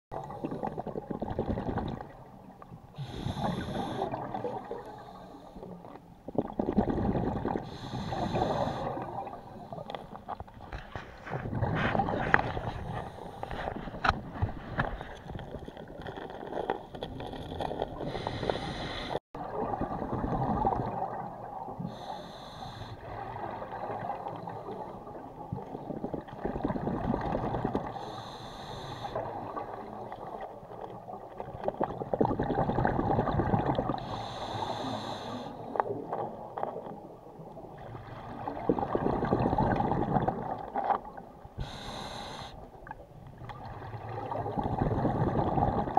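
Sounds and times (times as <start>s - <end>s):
gurgling rush of exhaled bubbles: 0.2s - 2.4s, 3.0s - 5.2s, 6.3s - 9.9s, 11.0s - 22.1s, 23.0s - 28.1s, 29.2s - 36.5s, 37.7s - 41.9s, 42.9s - 45.9s
hissing regulator inhale: 3.0s - 4.1s, 7.6s - 9.0s, 18.0s - 19.2s, 21.9s - 23.1s, 27.9s - 29.2s, 34.0s - 35.7s, 41.6s - 42.6s.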